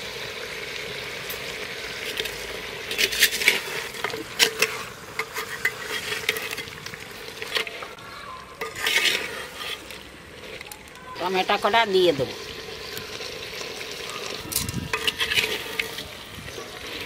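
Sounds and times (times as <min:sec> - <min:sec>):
meat sizzling in a clay pot: 0:00.0 - 0:17.0
spatula scraping and knocking pot: 0:02.9 - 0:07.8, 0:08.6 - 0:10.0, 0:14.5 - 0:17.0.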